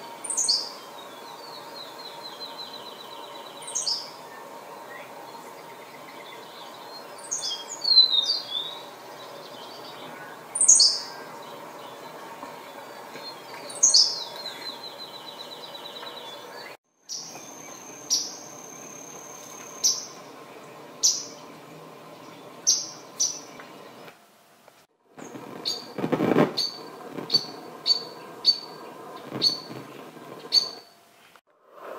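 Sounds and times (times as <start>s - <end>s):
thin steady high tone: 0.0s - 24.0s
recording hiss: 0.0s - 31.9s
sparrow singing short high song: 0.2s - 20.3s, 26.6s - 30.9s
sharp high bird notes: 25.2s - 31.0s.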